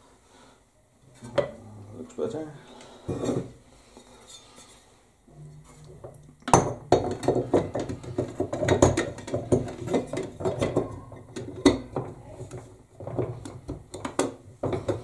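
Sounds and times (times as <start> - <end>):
metal clinking and knocking: 5.4 - 15.0.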